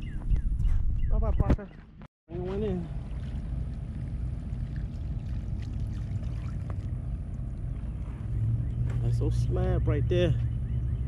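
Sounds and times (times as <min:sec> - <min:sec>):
low outdoor rumble: 0:02.3 - 0:11.0.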